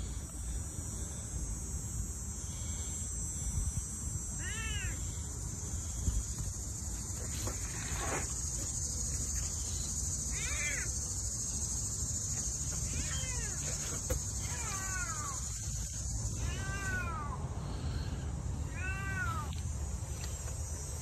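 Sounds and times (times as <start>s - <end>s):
high insect drone: 0.0s - 21.0s
cat meowing: 4.4s - 5.0s, 12.8s - 13.7s, 16.4s - 17.4s, 18.7s - 19.6s.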